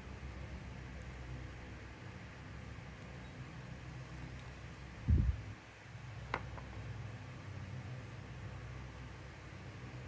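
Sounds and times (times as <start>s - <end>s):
faint background hiss: 0.0s - 10.0s.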